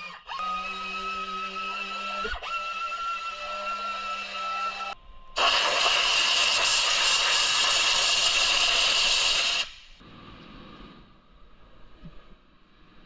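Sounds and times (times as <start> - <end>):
air blow gun hissing: 5.4 - 10.0.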